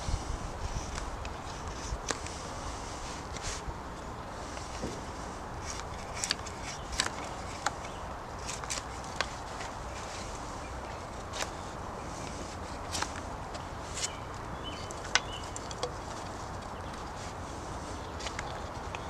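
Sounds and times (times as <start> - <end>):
blade scraping wood: 4.3 - 19.0.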